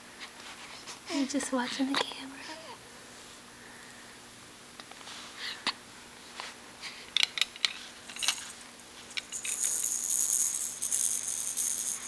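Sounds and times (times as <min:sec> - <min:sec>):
baby toy rattle shaken: 0:08.1 - 0:12.0.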